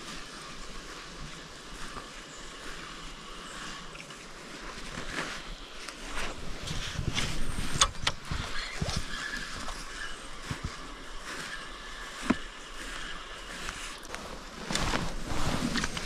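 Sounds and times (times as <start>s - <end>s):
wind on microphone: 5.0s - 12.9s.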